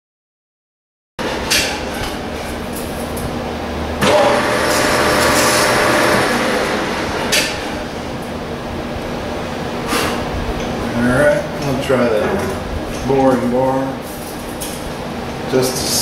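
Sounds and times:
metal lathe humming: 0:03.9 - 0:08.4
boring bar cutting metal: 0:04.0 - 0:07.8.

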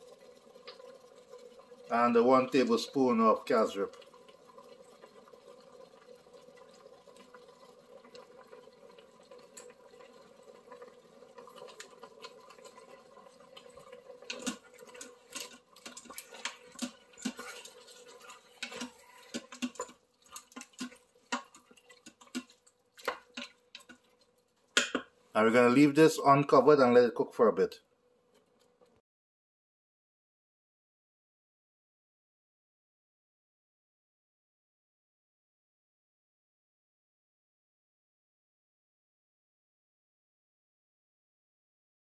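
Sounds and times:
meat simmering in a pot: 0:00.0 - 0:29.0
wooden spoon scraping a pot: 0:10.8 - 0:25.0.

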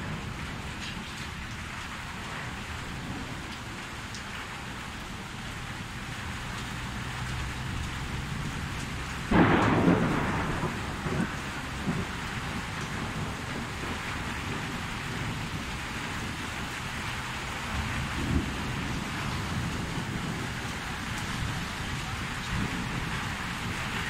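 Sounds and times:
thunder cracking and rumbling: 0:00.0 - 0:03.9, 0:07.2 - 0:24.0
heavy rain: 0:00.0 - 0:24.0.

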